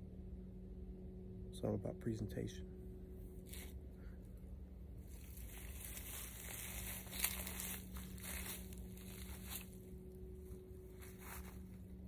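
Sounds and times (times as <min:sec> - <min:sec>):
fishing rod handling rustle: 0:03.4 - 0:03.8, 0:05.0 - 0:10.0.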